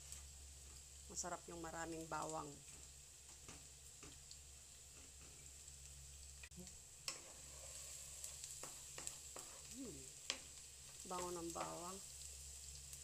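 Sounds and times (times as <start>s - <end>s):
garlic sizzling in oil: 0.0s - 13.0s
spatula scraping and tapping pan: 7.1s - 11.8s.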